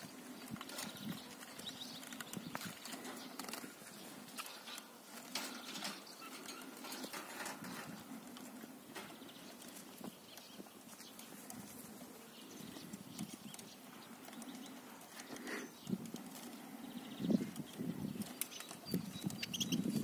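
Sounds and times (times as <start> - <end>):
bird calls: 0.0 - 20.0
small knocks and rustles: 0.3 - 12.2.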